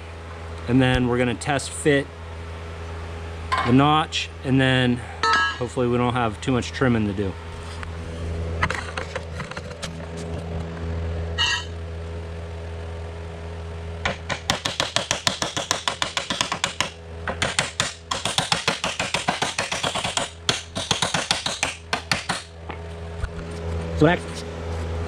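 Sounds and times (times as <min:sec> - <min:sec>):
hammer pounding steel: 0:14.0 - 0:22.5.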